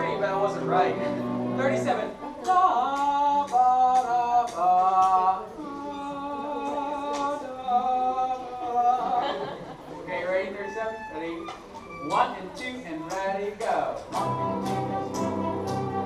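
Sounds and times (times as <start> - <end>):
string orchestra playing held notes: 0.0 - 3.0, 9.4 - 13.3, 14.0 - 16.0.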